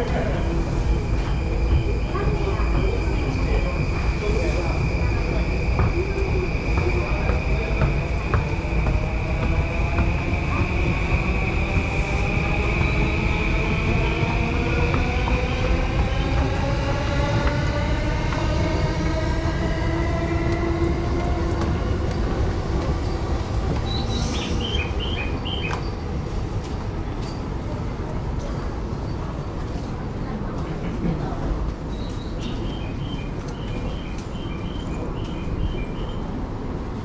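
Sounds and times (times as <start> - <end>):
wheels rumbling on rails: 0.0 - 37.0.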